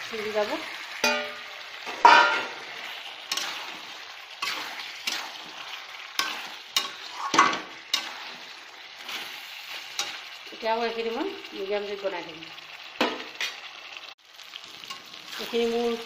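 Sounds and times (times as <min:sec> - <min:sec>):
food sizzling in oil: 0:00.0 - 0:16.0
spatula scraping and knocking pan: 0:01.0 - 0:10.3.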